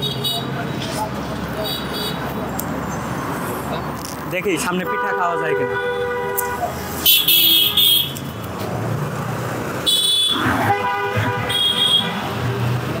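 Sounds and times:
vehicle horns honking: 0.0 - 0.6, 4.6 - 8.4, 9.8 - 12.7
low traffic rumble: 0.0 - 13.0.

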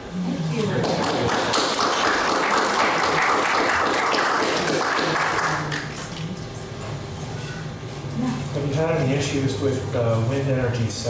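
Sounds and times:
audience applauding: 0.8 - 6.1.

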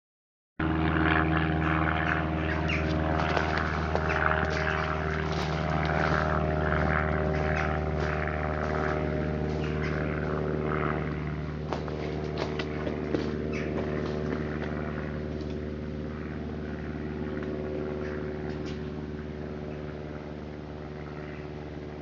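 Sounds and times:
steady mechanical drone: 0.6 - 22.0.

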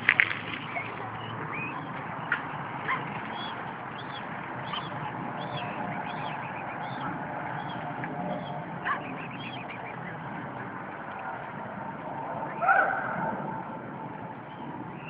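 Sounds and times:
cygnets peeping: 0.4 - 11.6.

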